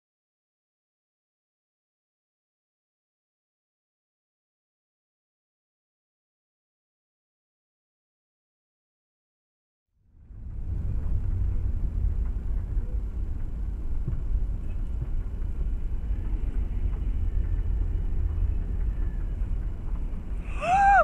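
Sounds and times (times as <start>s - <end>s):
car driving rumble: 10.0s - 21.0s.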